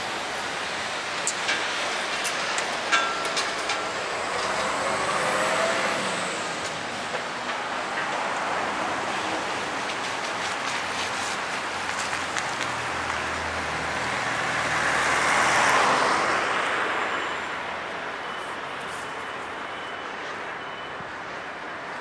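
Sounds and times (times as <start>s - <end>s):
road traffic noise: 0.0s - 22.0s
vehicle passing: 4.4s - 6.6s.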